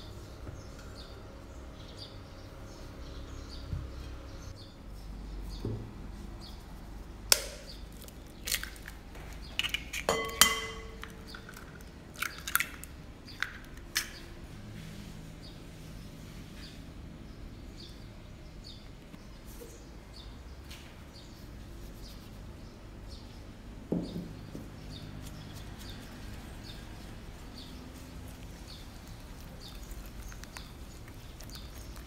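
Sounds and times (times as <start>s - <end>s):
glass ringing: 10.1s - 11.1s
eggs knocking on glass bowl: 10.1s - 11.6s.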